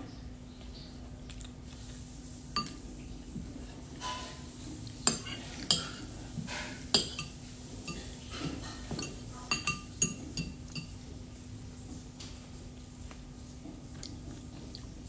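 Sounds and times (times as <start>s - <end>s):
spoon clinking against bowl: 2.6s - 2.8s, 5.0s - 6.1s, 6.9s - 11.0s.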